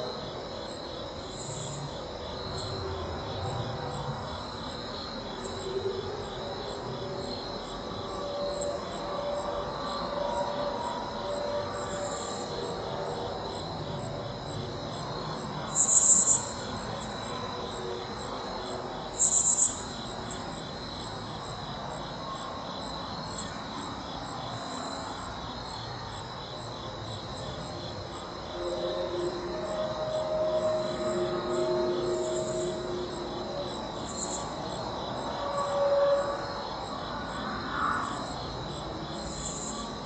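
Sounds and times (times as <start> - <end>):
crickets trilling: 0.0 - 40.0
low drone: 28.4 - 40.0.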